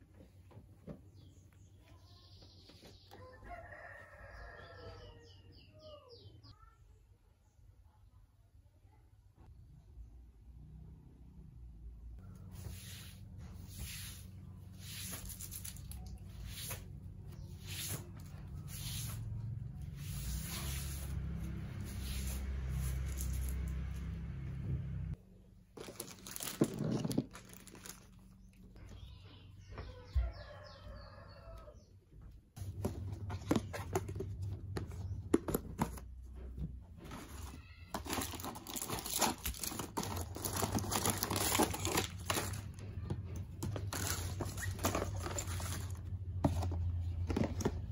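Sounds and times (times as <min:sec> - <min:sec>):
broom sweeping wooden floor: 0:12.4 - 0:23.9
plastic packs crinkling and clicking: 0:25.8 - 0:28.6, 0:37.1 - 0:47.9.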